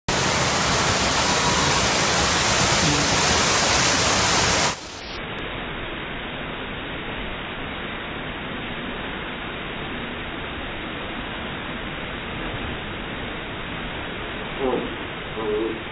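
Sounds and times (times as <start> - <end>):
water rushing and splashing: 0.0 - 5.2.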